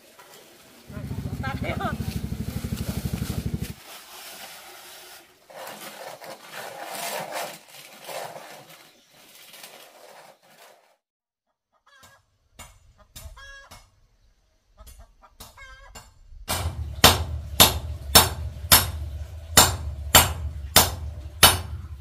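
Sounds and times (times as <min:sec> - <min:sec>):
loud low pulsing hum: 0:00.9 - 0:03.8, 0:16.3 - 0:22.0
chickens clucking: 0:11.7 - 0:14.0, 0:14.7 - 0:16.1.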